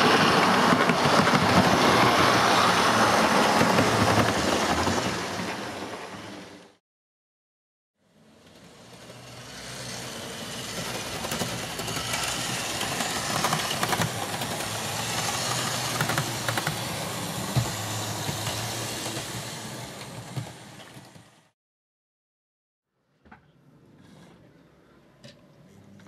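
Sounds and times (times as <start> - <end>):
wheels clicking over rail joints: 8.4 - 21.5
model train motor whirring: 8.5 - 21.4.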